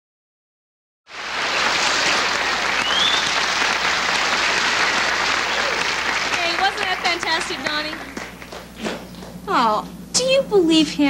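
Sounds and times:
audience applauding: 1.1 - 9.4.

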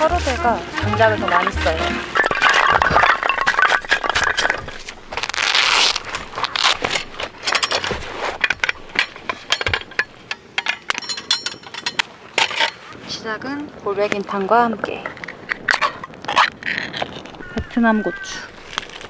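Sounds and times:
wood fire crackling: 0.0 - 19.0
metal grill grate clinking: 6.9 - 12.8
metallic ring: 9.0 - 12.8.

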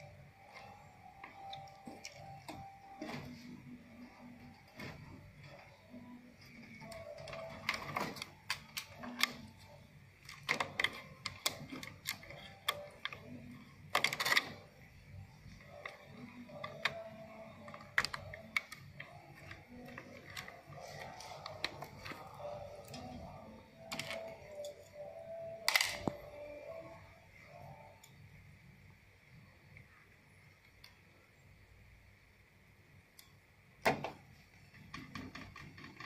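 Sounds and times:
cable connectors clicking: 4.2 - 28.2.

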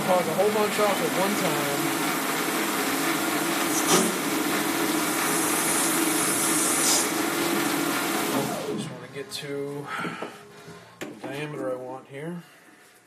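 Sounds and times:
lathe cutting: 0.0 - 9.8
motor hum: 0.0 - 11.1.

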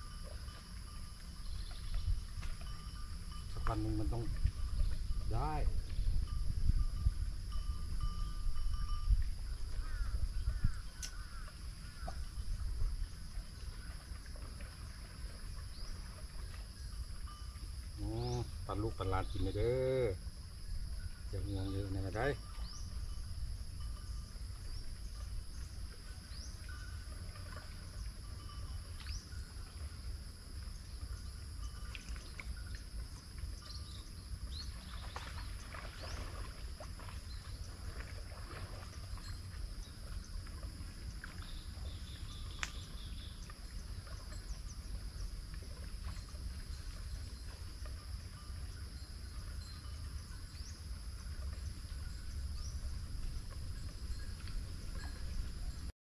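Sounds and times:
insects droning: 0.0 - 55.9
sharp tick: 42.6 - 42.8.

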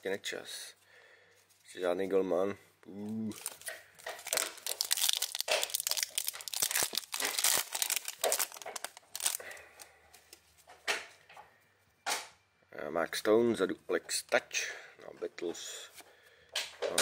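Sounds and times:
foil wrapper crinkling: 3.2 - 9.9.

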